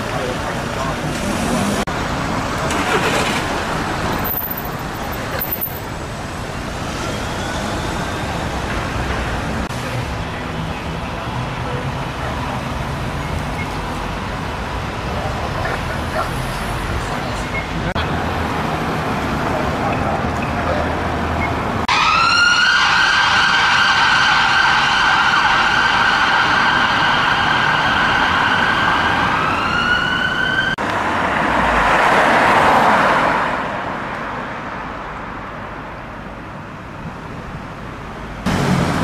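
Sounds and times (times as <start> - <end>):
traffic noise: 0.0 - 39.0
emergency siren wailing: 21.8 - 30.8.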